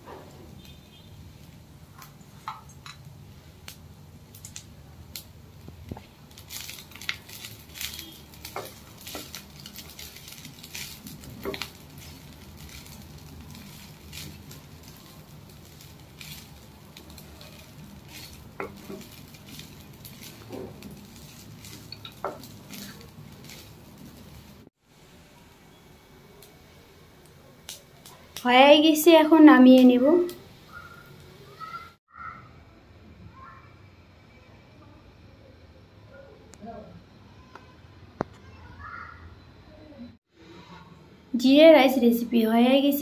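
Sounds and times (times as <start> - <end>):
spatula scraping frying pan: 7.3 - 24.6.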